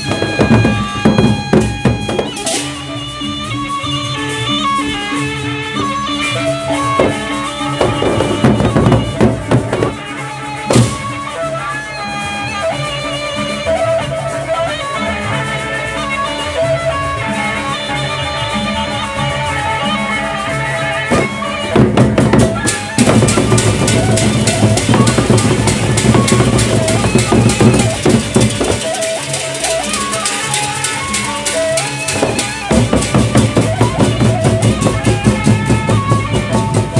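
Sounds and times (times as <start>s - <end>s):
heavy drumming: 0.0s - 11.6s, 19.6s - 36.9s
gamelan ensemble playing: 0.0s - 36.9s.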